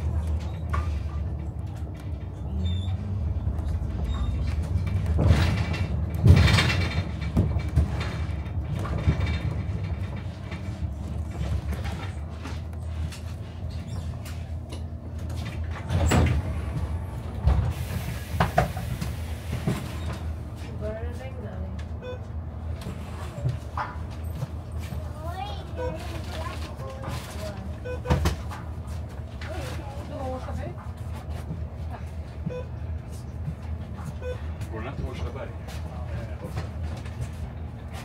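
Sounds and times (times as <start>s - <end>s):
bus engine hum: 0.0s - 38.0s
knocks and rattles: 3.6s - 16.5s.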